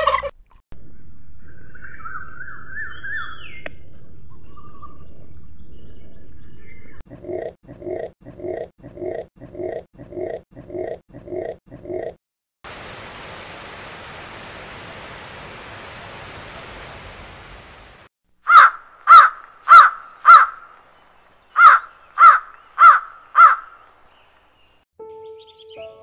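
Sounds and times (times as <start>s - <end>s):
waterfall rushing: 12.7s - 18.1s
crow cawing: 18.5s - 20.6s, 21.6s - 23.8s.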